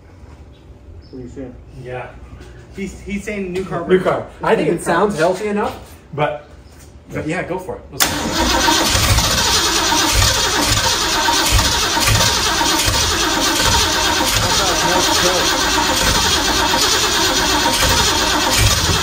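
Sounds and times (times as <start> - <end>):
engine cranking and firing unevenly: 8.0 - 19.0.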